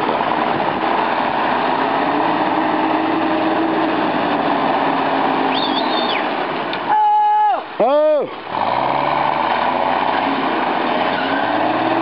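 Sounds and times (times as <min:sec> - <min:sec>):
engine running under load: 0:00.0 - 0:06.9, 0:07.8 - 0:12.0
high wavering whistle: 0:05.5 - 0:06.3.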